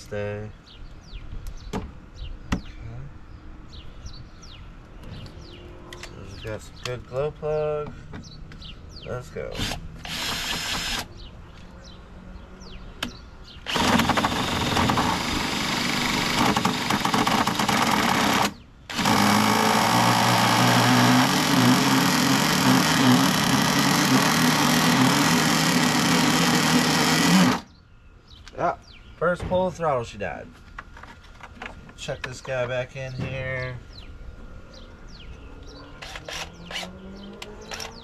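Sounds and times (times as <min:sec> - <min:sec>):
small nitro engine running: 0:18.9 - 0:27.7.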